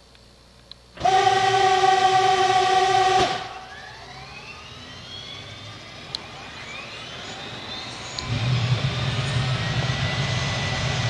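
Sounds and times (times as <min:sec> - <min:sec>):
turbine engine whine and rumble: 0:00.0 - 0:11.0
click: 0:00.1 - 0:00.8.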